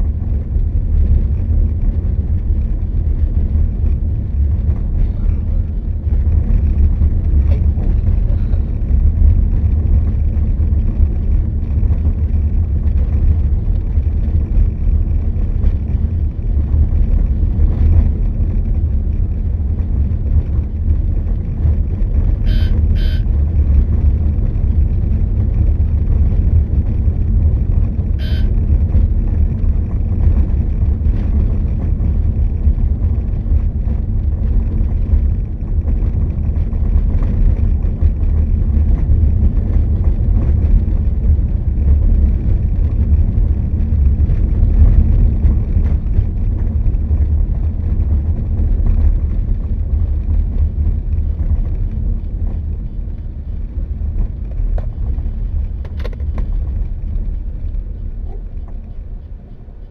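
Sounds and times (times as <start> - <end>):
vehicle rumble on road: 0.0 - 59.9
short high beeps: 22.5 - 23.2, 28.2 - 28.5.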